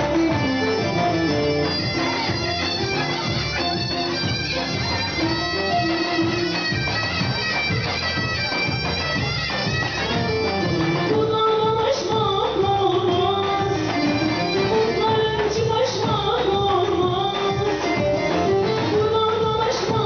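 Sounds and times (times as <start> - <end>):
band playing dance music: 0.0 - 20.0
steady drum beat: 0.0 - 20.0.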